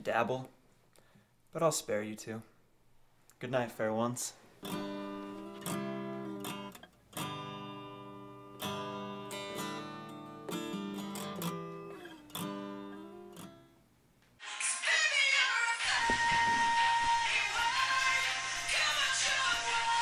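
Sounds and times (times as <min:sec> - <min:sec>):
acoustic guitar strumming: 0:04.6 - 0:13.9, 0:15.8 - 0:20.0.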